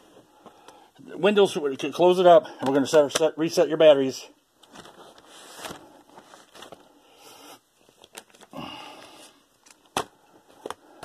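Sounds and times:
laptop plastic scrapes and rustles: 4.6s - 7.0s.

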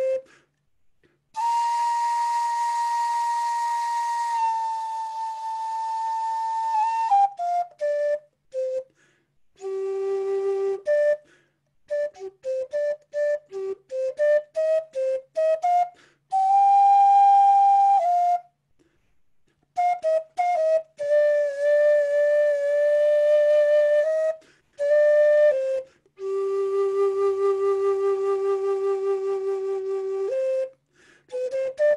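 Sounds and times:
wooden flute playing: 0.0s - 0.5s, 1.4s - 18.6s, 19.8s - 31.9s.

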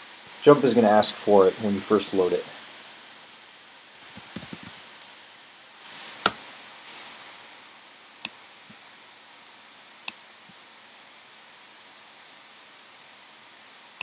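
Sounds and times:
faint steady hiss: 0.0s - 14.0s
computer mouse clicks: 4.0s - 4.8s.

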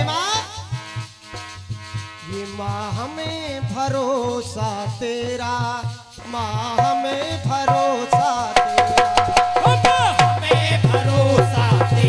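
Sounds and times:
harmonium: 0.0s - 12.0s
wordless singing: 2.3s - 12.0s
hand drum: 6.5s - 12.0s.

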